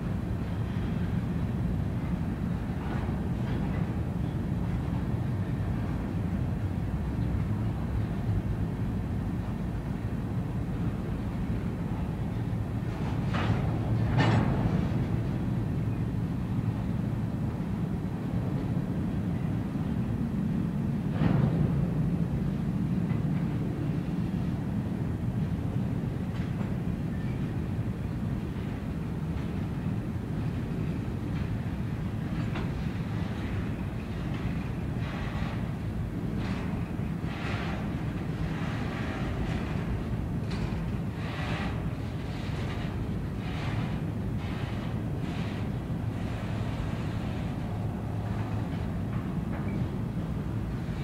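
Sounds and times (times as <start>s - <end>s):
freight train wheels rumbling: 0.0s - 51.0s.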